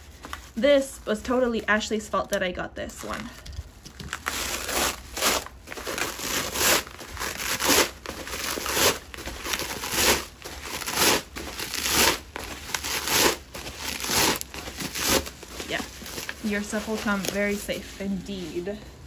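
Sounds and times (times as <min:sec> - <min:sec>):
bubble wrap crinkling: 0:00.0 - 0:19.0.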